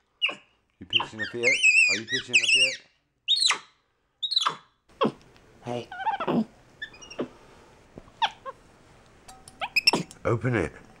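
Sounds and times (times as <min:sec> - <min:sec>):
monkey squeaks sweeping down: 0:00.2 - 0:03.6, 0:04.2 - 0:04.6, 0:09.6 - 0:10.1.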